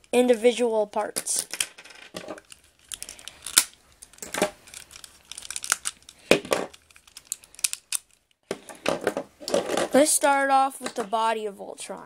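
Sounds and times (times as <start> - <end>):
toy robot pieces clicking and snapping: 2.4 - 8.2.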